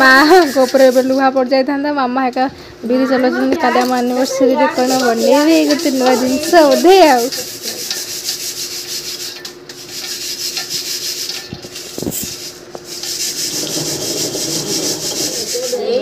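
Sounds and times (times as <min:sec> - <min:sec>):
stone quern grinding: 0:04.8 - 0:15.8.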